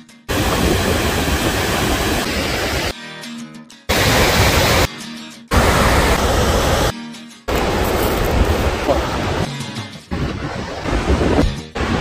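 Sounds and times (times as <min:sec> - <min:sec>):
waterfall roaring: 0:00.3 - 0:02.9, 0:03.9 - 0:04.9, 0:05.5 - 0:06.9, 0:07.5 - 0:09.5
background music: 0:02.9 - 0:12.0
wind rumbling on microphone: 0:10.1 - 0:12.0.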